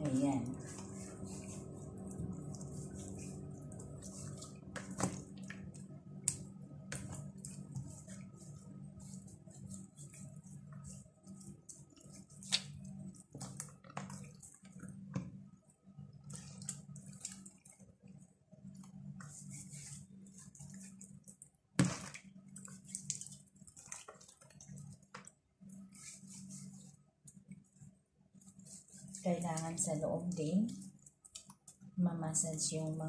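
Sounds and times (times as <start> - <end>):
steady low hum: 0.0 - 23.6
hands squelching fish in marinade: 0.0 - 32.7.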